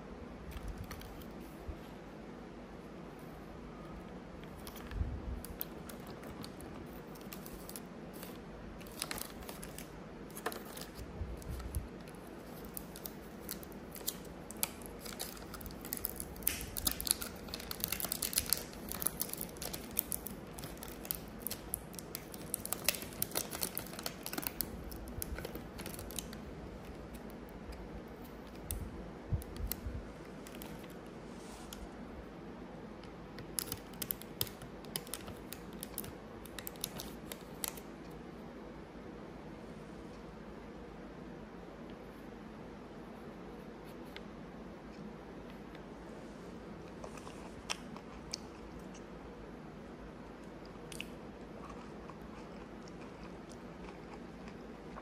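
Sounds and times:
plastic packaging crinkling: 4.5s - 27.5s, 29.4s - 31.0s, 33.4s - 37.8s.

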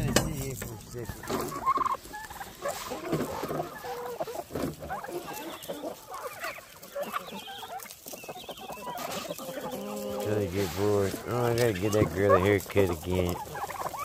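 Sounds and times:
chickens calling: 0.0s - 14.0s.

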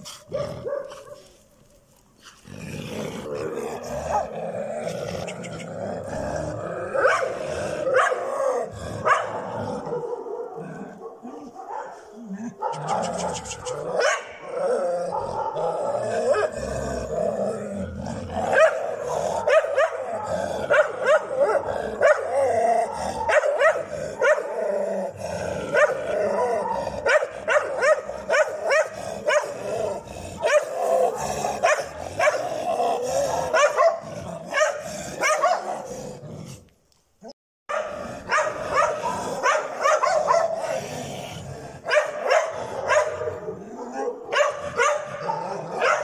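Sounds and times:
dogs barking: 0.0s - 1.4s, 4.0s - 4.4s, 6.9s - 16.6s, 18.3s - 24.7s, 25.6s - 36.0s, 37.7s - 40.9s, 41.8s - 46.0s
dogs growling and snarling: 0.0s - 1.4s, 2.2s - 36.8s, 37.8s - 46.0s.

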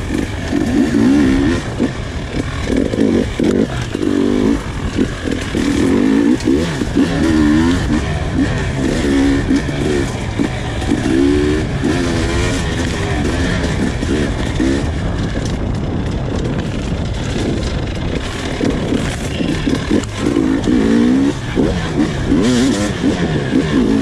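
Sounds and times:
dirt bike engine revving: 0.0s - 24.0s.

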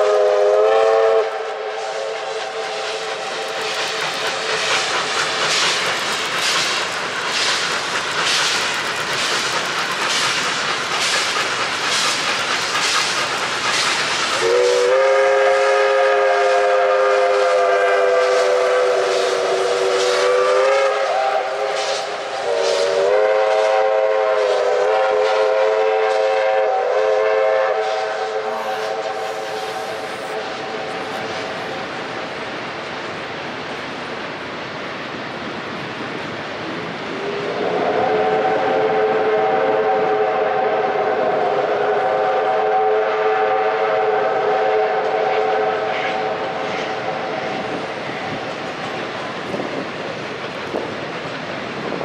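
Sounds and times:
steam whistle blast: 0.0s - 3.9s, 14.4s - 31.3s, 37.4s - 47.5s
steam locomotive chuffing: 0.0s - 52.0s.

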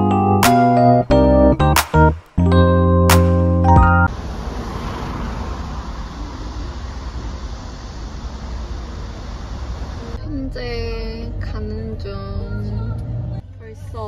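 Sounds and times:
keyboard music: 0.0s - 4.1s
car road and wind noise: 1.0s - 14.0s.

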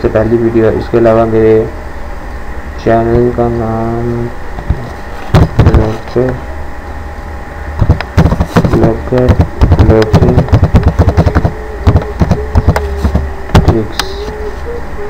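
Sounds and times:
low steady hum: 0.0s - 15.0s
wavering tone: 8.7s - 15.0s.

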